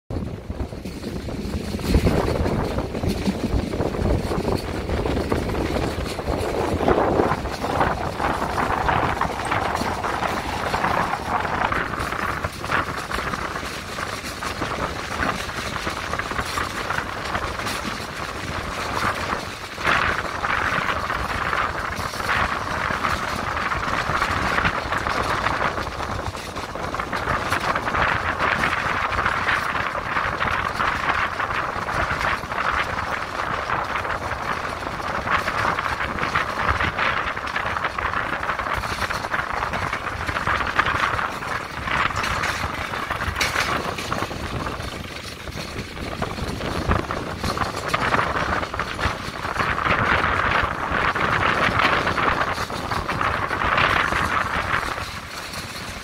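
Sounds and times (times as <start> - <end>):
train carriage rumble and rattle: 0.0 - 56.0
wheel clicks on rails: 0.1 - 56.0.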